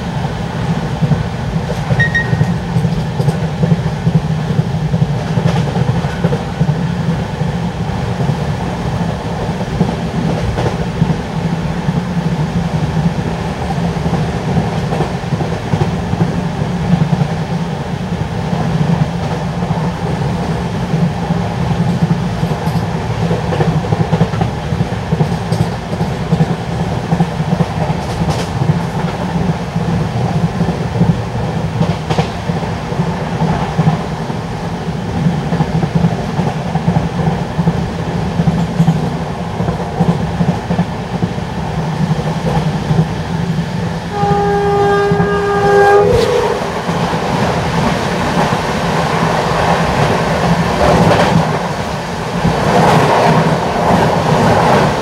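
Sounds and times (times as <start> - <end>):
train wheels clattering on rails: 0.0 - 55.0
train horn: 2.0 - 2.6, 44.1 - 47.1.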